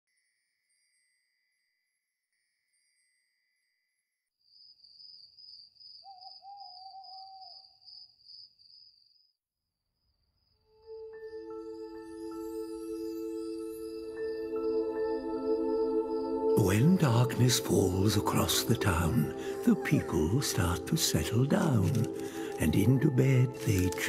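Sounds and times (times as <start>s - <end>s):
wavering owl hoot: 6.0s - 7.8s.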